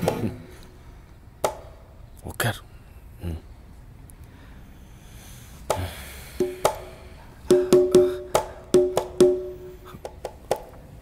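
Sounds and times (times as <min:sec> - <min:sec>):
wooden percussion strikes: 0:00.0 - 0:00.5, 0:01.4 - 0:01.8, 0:05.7 - 0:10.9.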